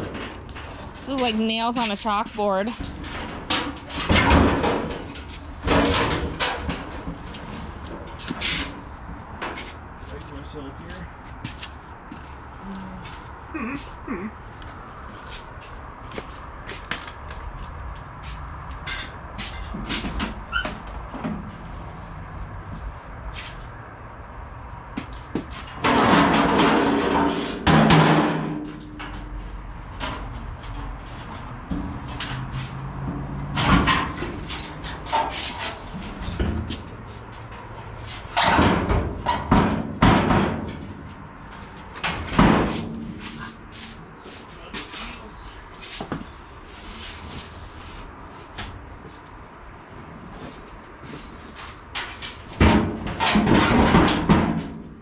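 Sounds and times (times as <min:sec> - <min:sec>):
sheet metal scraping: 0:25.5 - 0:45.2.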